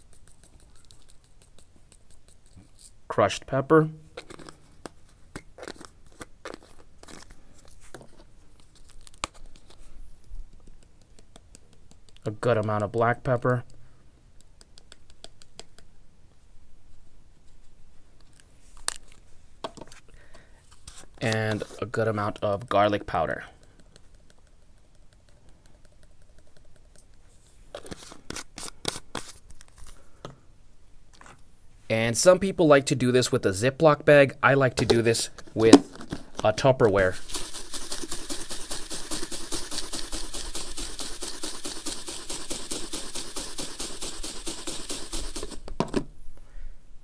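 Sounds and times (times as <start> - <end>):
pepper flakes shaken from glass jar: 37.0 - 45.6.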